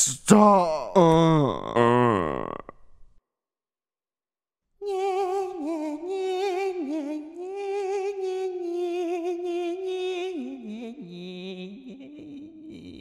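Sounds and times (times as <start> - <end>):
high-pitched voice singing: 4.8 - 13.0.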